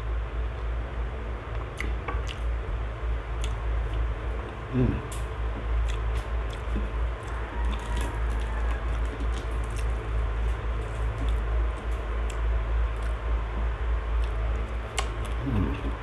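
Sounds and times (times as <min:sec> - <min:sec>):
steady low rumble: 0:00.0 - 0:16.0
soft chewing: 0:01.5 - 0:16.0
mouth and food clicks: 0:03.4 - 0:10.0, 0:14.2 - 0:15.9
fingers picking at food: 0:03.4 - 0:13.2.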